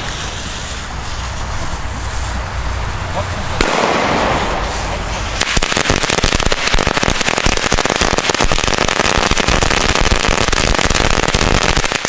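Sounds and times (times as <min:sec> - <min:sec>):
firecracker string bangs: 0:03.1 - 0:09.6.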